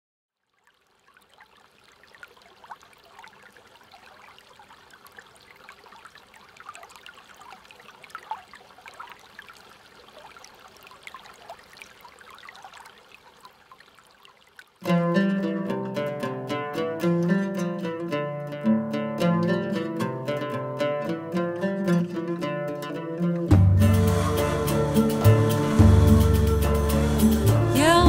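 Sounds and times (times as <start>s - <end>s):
water trickling and bubbling: 0.3s - 19.0s
small bubbling plinks: 0.4s - 15.0s.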